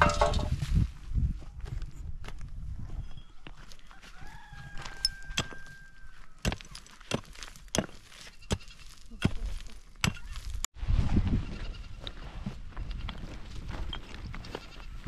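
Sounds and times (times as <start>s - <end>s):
hand tool striking: 0.0s - 0.5s.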